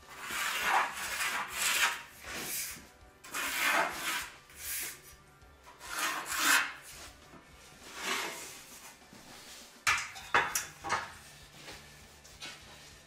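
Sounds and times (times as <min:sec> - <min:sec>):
straightedge scraping on wood: 0:00.1 - 0:05.0, 0:05.7 - 0:07.0, 0:07.9 - 0:08.6.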